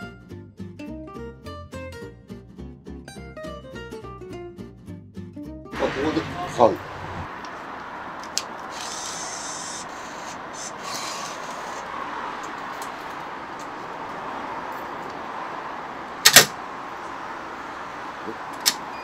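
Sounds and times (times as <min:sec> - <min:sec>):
bill acceptor whirring: 0:08.6 - 0:11.9.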